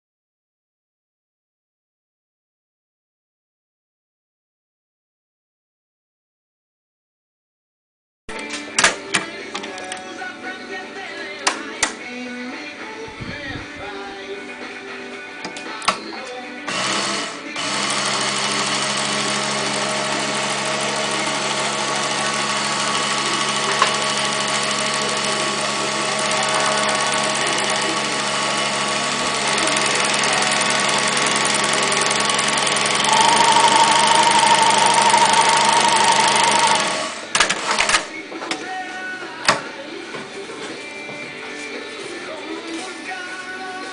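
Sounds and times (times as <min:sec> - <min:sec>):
sewing machine stitching: 0:16.7 - 0:38.1.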